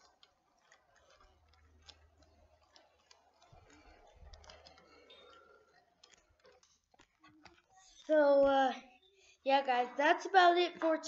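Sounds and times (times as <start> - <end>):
wheels clicking on rails: 0.0 - 8.2.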